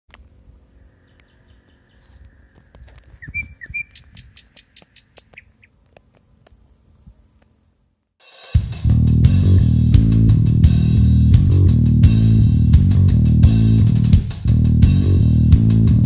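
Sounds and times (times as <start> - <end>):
birds chirping: 0.1 - 7.4
sharp clicks: 1.1 - 6.6
music with bass and electric guitar: 8.6 - 16.0
low rumble: 8.9 - 16.0.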